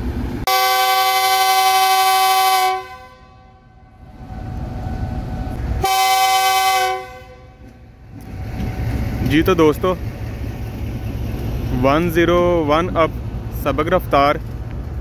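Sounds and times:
locomotive horn blasts: 0:00.5 - 0:04.0, 0:05.8 - 0:07.7.

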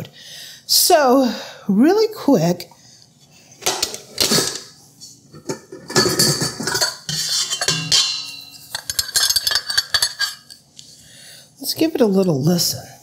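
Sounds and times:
steel mixer parts clanking: 0:05.3 - 0:10.7.

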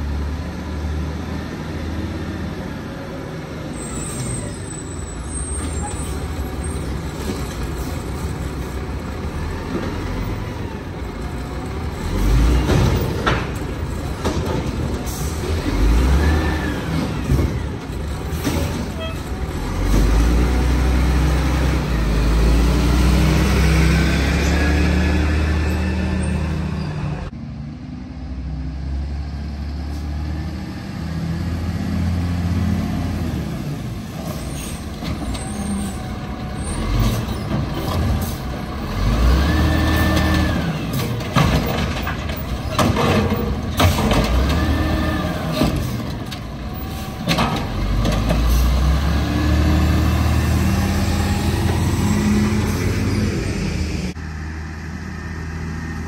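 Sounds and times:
garbage truck diesel engine revving: 0:05.4 - 0:27.3, 0:28.3 - 0:56.0
clanks and bangs of cart dumping: 0:12.1 - 0:16.0, 0:16.8 - 0:20.2, 0:39.6 - 0:49.0.

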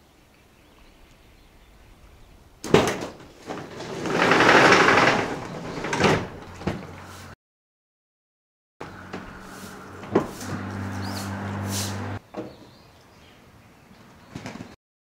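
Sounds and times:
rushing air: 0:08.9 - 0:12.2.

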